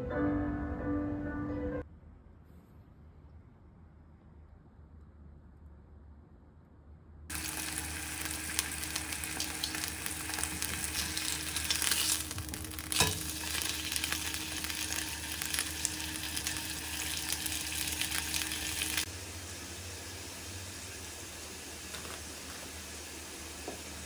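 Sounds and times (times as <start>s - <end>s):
steak sizzling in a skillet: 7.3s - 19.1s.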